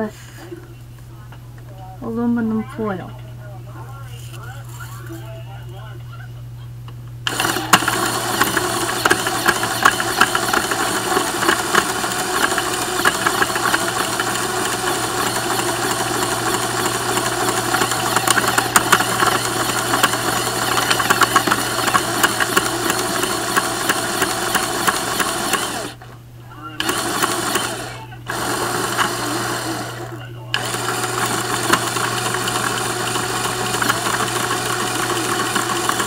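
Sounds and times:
toy shredder motor whirring: 7.3s - 26.0s, 26.8s - 36.0s.

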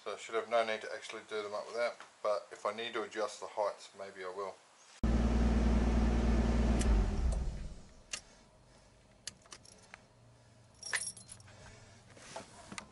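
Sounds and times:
car engine running: 5.0s - 7.9s
keys jangling: 9.4s - 10.0s, 10.8s - 11.5s.

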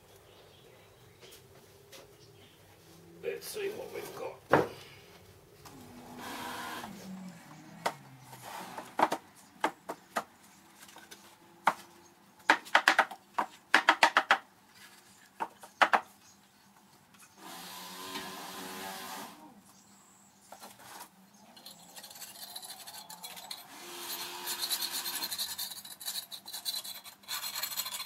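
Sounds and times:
sharp wooden knocks: 8.7s - 10.3s, 12.5s - 14.4s, 15.4s - 16.1s.

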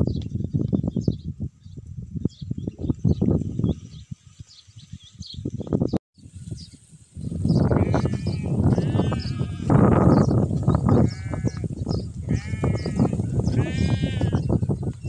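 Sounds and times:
sheep bleating: 7.7s - 9.9s, 10.9s - 11.6s, 12.3s - 14.5s.

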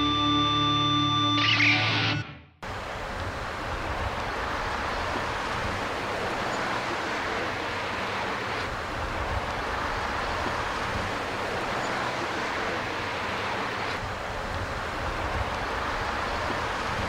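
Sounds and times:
cars driving past: 2.6s - 17.0s
wind rumble on microphone: 2.7s - 6.5s, 8.6s - 11.8s, 14.0s - 17.0s.

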